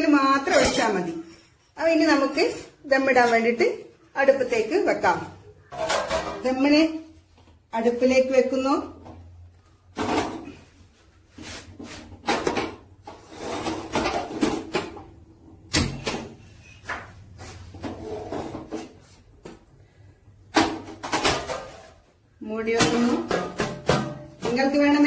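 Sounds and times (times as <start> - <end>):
metal pot knocking and scraping: 5.6 - 6.7.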